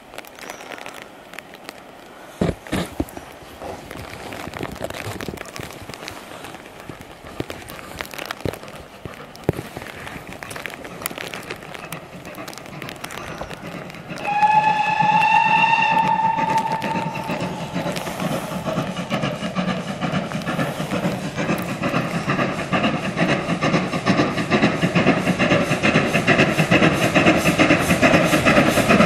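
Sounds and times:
train running noise: 0:00.0 - 0:29.0
steam locomotive whistle: 0:14.2 - 0:19.3.

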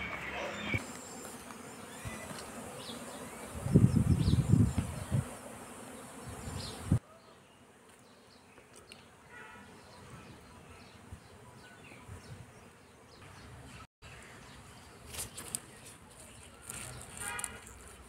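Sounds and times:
honeybees buzzing: 0:00.0 - 0:13.7
bee flying past close: 0:00.8 - 0:07.0.

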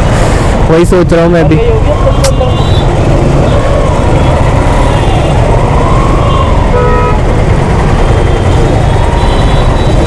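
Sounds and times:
vehicle horn honking: 0:06.7 - 0:07.2.

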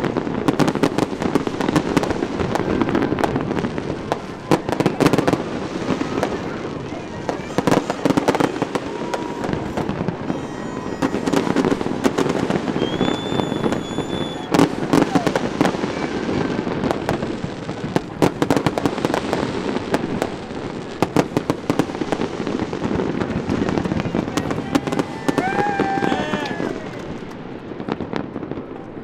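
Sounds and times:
fireworks bangs and crackles: 0:00.0 - 0:29.0
high steady whistle: 0:12.7 - 0:15.4.

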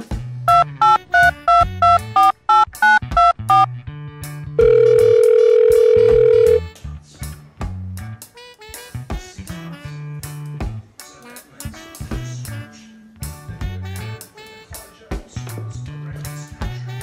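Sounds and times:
background music with bass: 0:00.0 - 0:17.0
keypad touch-tones dialing: 0:00.5 - 0:03.7, 0:04.6 - 0:06.6
long steady beep: 0:00.5 - 0:03.7.

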